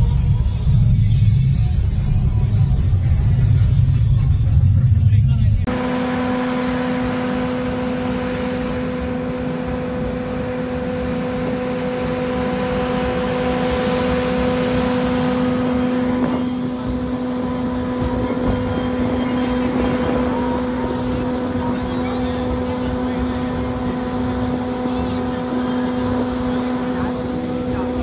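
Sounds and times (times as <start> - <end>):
locomotive engine hum: 0.0 - 28.0
wheels rattling on track: 5.7 - 28.0.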